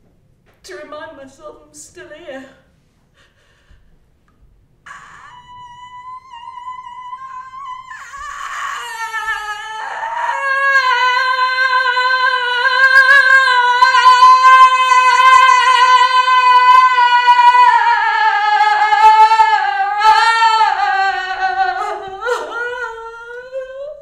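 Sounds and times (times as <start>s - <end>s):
woman mewling like a cat: 4.9s - 17.4s.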